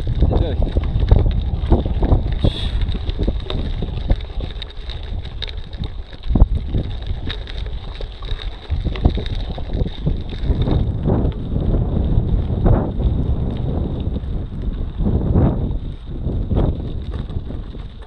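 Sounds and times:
bike rattling over loose stones: 0.0s - 18.0s
wind buffeting microphone: 0.0s - 18.0s.

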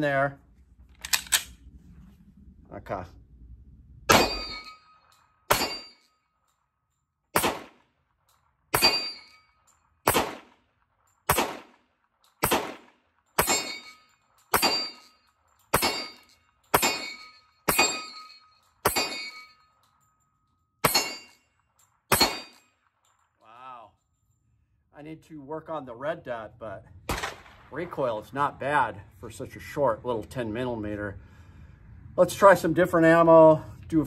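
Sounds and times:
pistol shots: 4.1s - 4.7s, 5.5s - 5.9s, 7.3s - 7.9s, 8.7s - 9.2s, 10.0s - 10.6s, 11.2s - 13.9s, 14.5s - 15.0s, 15.7s - 18.1s, 18.8s - 19.3s, 22.1s - 22.6s, 27.1s - 27.9s.

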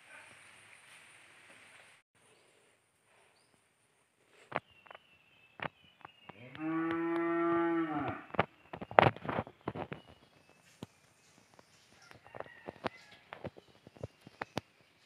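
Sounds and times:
cow mooing: 6.5s - 8.3s.

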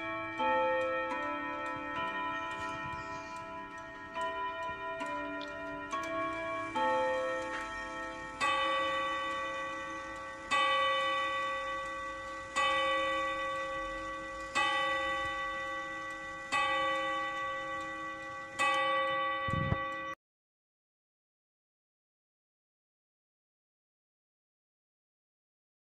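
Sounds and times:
clock chime melody: 0.0s - 20.2s
clock striking the hour: 0.0s - 20.2s.

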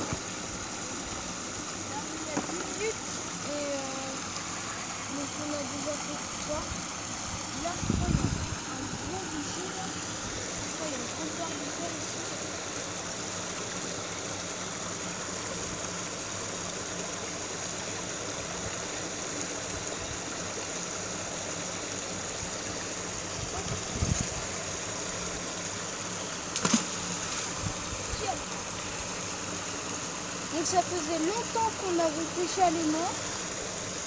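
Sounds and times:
stream and small waterfall: 0.0s - 34.0s
magnet splashing into water: 26.5s - 27.6s.

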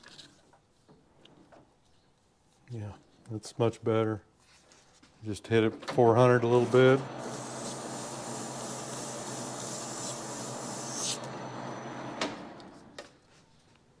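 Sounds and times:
lathe motor hum: 6.4s - 12.8s
abrasive strip rubbing on spinning metal: 7.2s - 11.3s.

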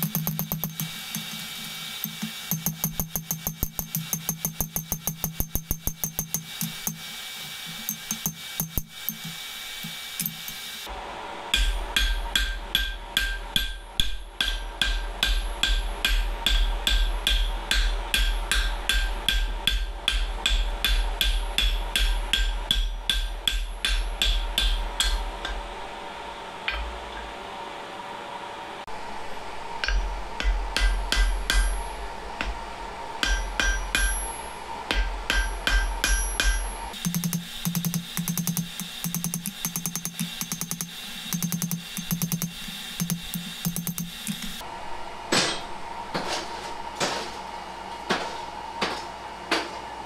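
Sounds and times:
hammer striking steel on anvil: 0.0s - 10.8s, 11.5s - 25.7s, 29.8s - 32.6s, 33.2s - 44.6s, 45.4s - 45.7s.

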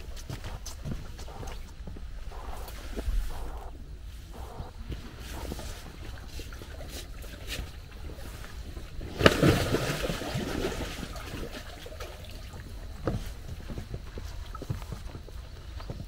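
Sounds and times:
water sloshing: 0.0s - 14.7s
water splash: 9.0s - 12.6s.

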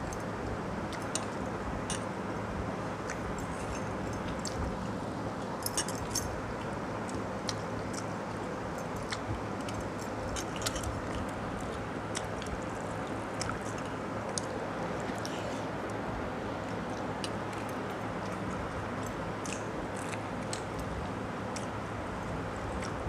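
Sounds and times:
steady low hum: 0.0s - 23.0s
chewing: 8.8s - 16.0s, 16.7s - 21.0s.

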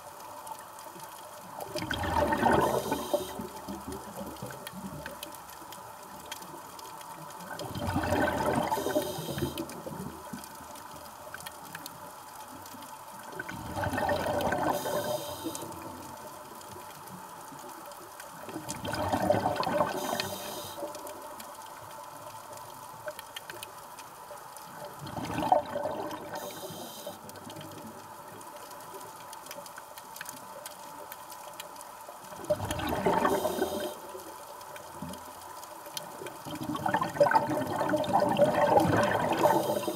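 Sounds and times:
exhaled bubbles underwater: 1.4s - 11.1s, 12.5s - 17.6s, 18.3s - 22.3s, 24.7s - 28.0s, 32.2s - 35.4s, 36.0s - 39.9s
regulator hiss: 2.7s - 3.4s, 8.8s - 9.6s, 14.7s - 15.7s, 20.0s - 21.0s, 26.4s - 27.3s, 33.3s - 34.1s, 39.5s - 39.9s.

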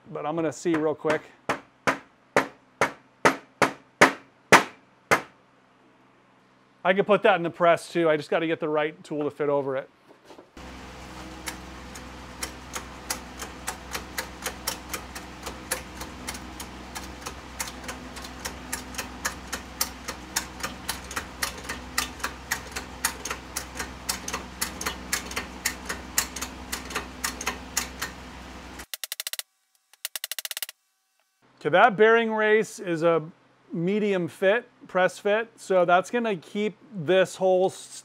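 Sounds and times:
steady low hum: 10.6s - 28.9s.

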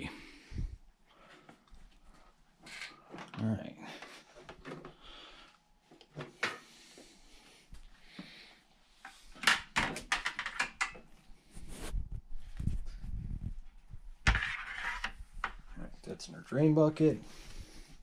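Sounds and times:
objects knocking and clattering: 9.4s - 11.1s, 14.2s - 15.7s.

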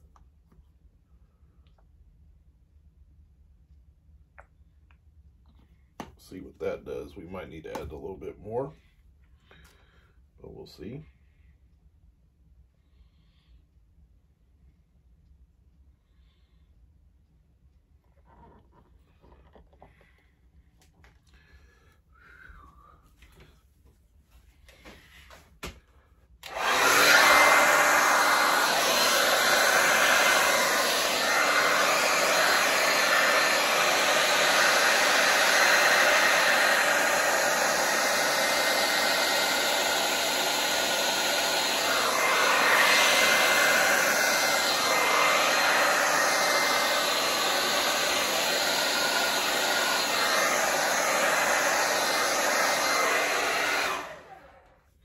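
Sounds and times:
hair dryer blowing: 26.4s - 55.0s.

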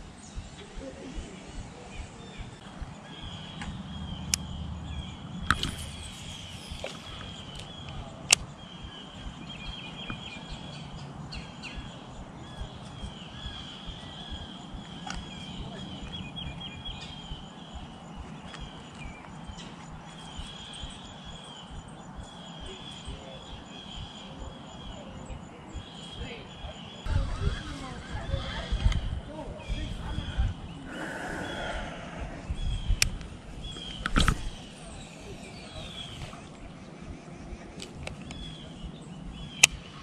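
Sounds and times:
insects chirping: 0.0s - 40.0s
sharp clicks: 0.3s - 4.7s, 5.4s - 23.0s, 39.6s - 39.9s.

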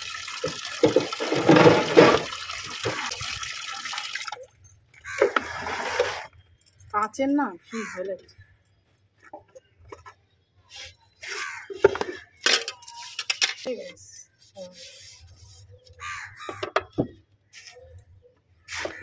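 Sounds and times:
water splashing in basin: 0.0s - 4.4s
scrubbing and scraping items: 0.4s - 3.2s, 5.0s - 6.4s.

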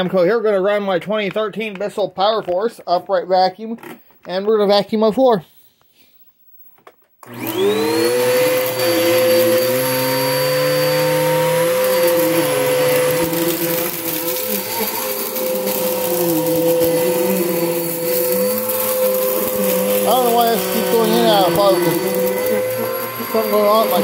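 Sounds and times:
vacuum cleaner running on carpet: 7.2s - 24.0s.

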